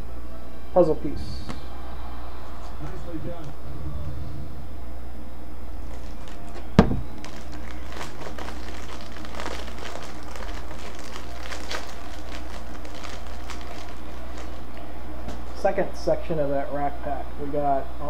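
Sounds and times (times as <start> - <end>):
steady low hum: 0.0 - 18.0
plastic wrapper tearing and crinkling: 5.8 - 15.6
sharp knock: 6.8 - 7.1.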